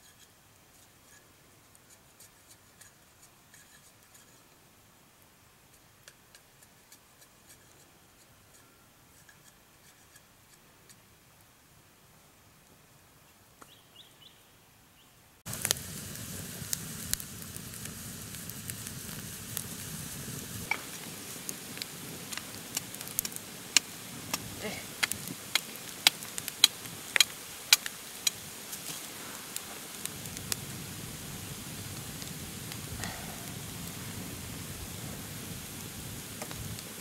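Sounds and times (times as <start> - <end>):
sizzling hiss with crackles: 0.0 - 12.9, 15.4 - 37.0.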